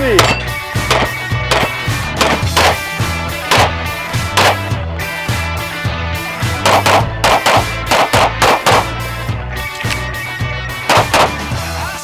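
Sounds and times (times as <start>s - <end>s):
music with steady bass line: 0.0s - 12.0s
sharp hits: 0.2s - 4.7s, 6.6s - 9.0s, 10.9s - 11.5s.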